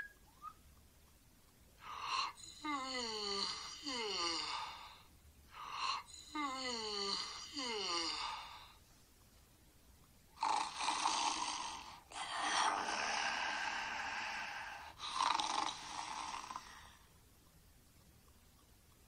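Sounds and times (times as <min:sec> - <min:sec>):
person snoring: 0:01.8 - 0:08.8, 0:10.4 - 0:17.1.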